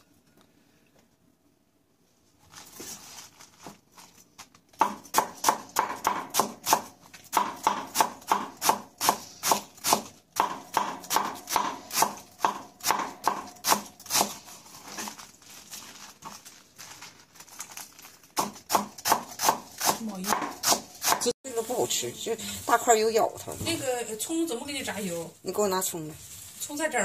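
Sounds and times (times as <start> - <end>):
knife chopping on cutting board: 4.8 - 14.4, 18.4 - 21.3.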